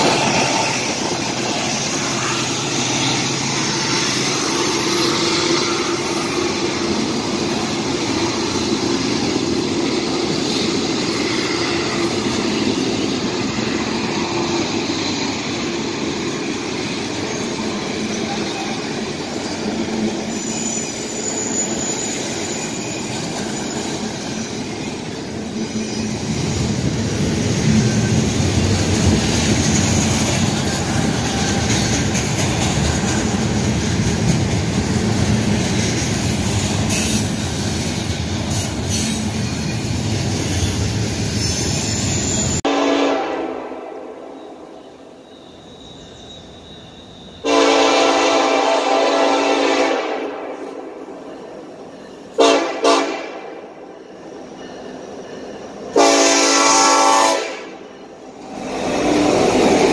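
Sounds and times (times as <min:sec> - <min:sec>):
freight train wheels clattering: 0:00.0 - 0:42.7.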